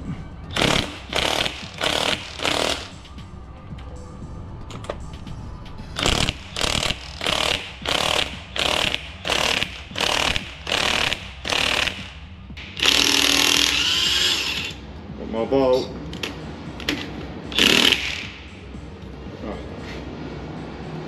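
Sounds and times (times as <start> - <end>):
cordless impact wrench hammering: 0.6 - 2.9, 6.0 - 14.8, 17.6 - 18.3.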